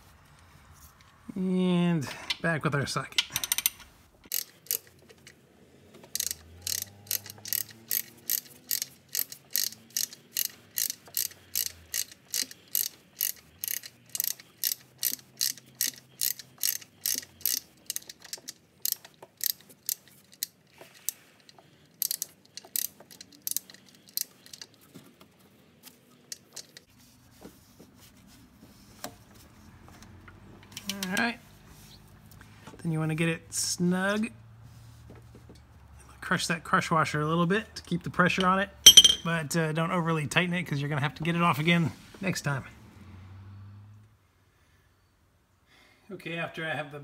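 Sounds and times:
ratchet wrench clicking: 3.2s - 5.3s, 6.1s - 24.7s, 38.9s - 39.2s.

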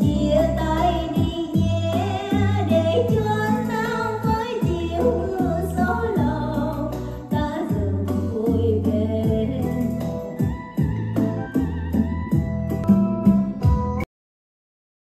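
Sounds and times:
woman singing a ballad: 0.0s - 12.0s
karaoke backing track: 0.0s - 14.1s.

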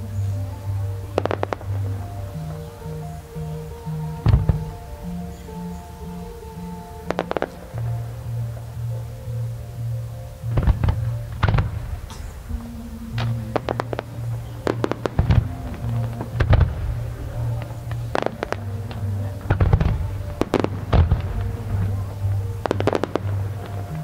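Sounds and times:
music with bass line: 0.0s - 24.0s
fireworks bangs and crackles: 10.6s - 24.0s.

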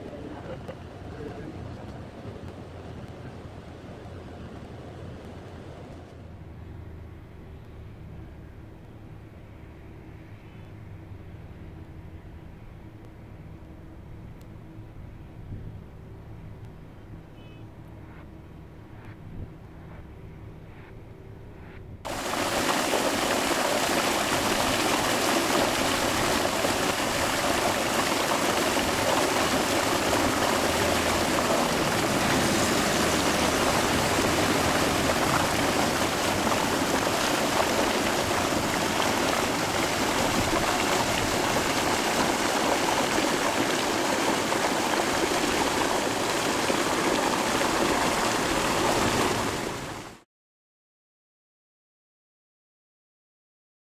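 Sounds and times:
water gushing from a pipe: 22.1s - 50.2s.

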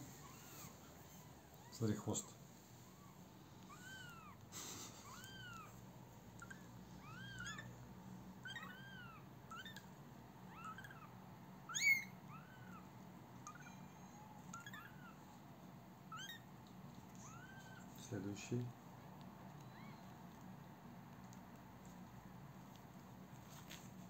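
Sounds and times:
kittens mewing: 0.1s - 7.8s, 8.4s - 15.2s, 16.0s - 18.0s, 19.5s - 20.6s.

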